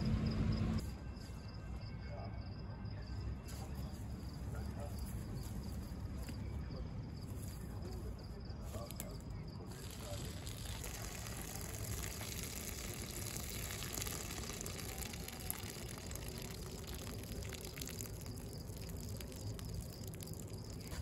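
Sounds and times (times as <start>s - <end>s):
water boiling and bubbling: 9.6s - 21.0s.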